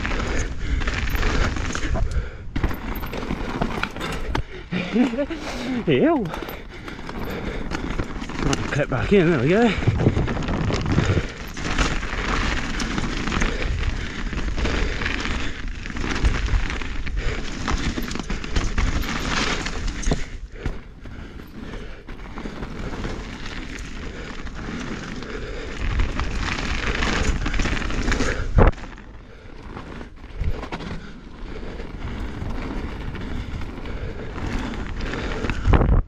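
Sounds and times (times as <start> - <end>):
bike tyres rolling over dirt: 0.0 - 36.0
wind rumble on microphone: 9.7 - 12.2, 31.8 - 36.0.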